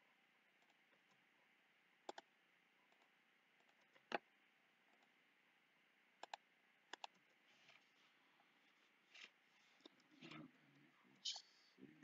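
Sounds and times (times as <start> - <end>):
computer mouse clicks: 2.0 - 2.3, 2.9 - 4.2, 6.2 - 7.4.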